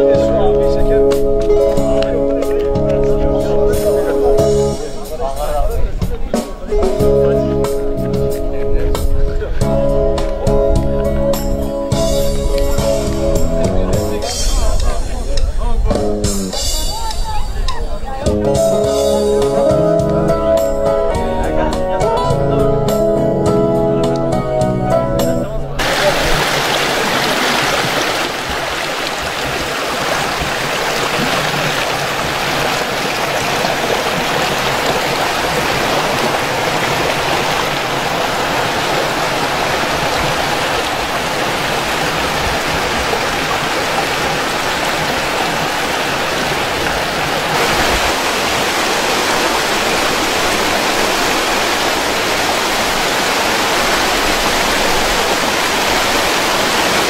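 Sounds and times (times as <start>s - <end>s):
water splashing over rocks: 25.8s - 57.0s.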